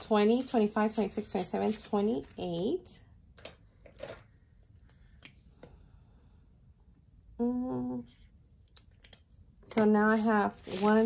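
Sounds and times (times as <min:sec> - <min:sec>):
woman humming: 0:07.4 - 0:08.2.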